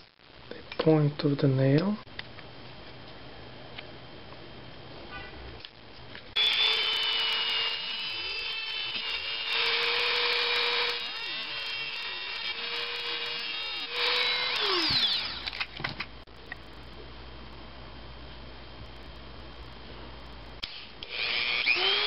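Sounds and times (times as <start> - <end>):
nail grinding hiss: 6.4 - 15.5
rotary tool whining: 6.4 - 15.8, 20.6 - 22.0.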